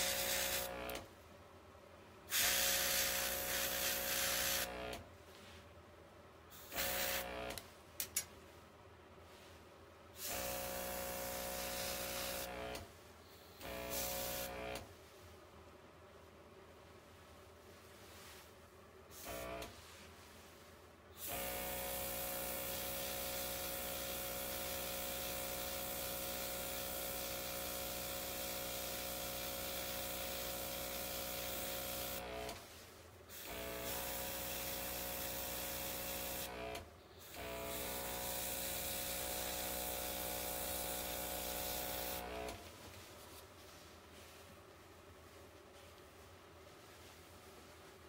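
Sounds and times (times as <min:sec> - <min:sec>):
airbrush air hiss: 0:00.0 - 0:00.7, 0:02.3 - 0:04.7, 0:06.5 - 0:07.3, 0:10.2 - 0:12.5, 0:13.2 - 0:14.6, 0:37.2 - 0:42.4
small compressor running: 0:00.0 - 0:01.1, 0:02.3 - 0:05.0, 0:06.6 - 0:07.6, 0:10.2 - 0:12.8, 0:13.5 - 0:14.9, 0:19.2 - 0:19.6, 0:21.2 - 0:32.6, 0:33.3 - 0:42.6.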